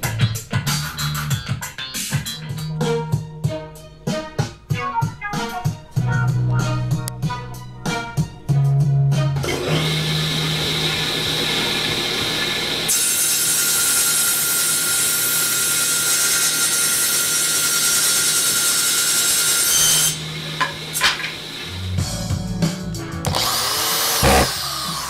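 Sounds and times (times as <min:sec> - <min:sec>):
saw blade cutting wood: 0:09.4 - 0:21.8, 0:23.3 - 0:25.0
table saw running: 0:09.4 - 0:21.9, 0:23.3 - 0:25.0.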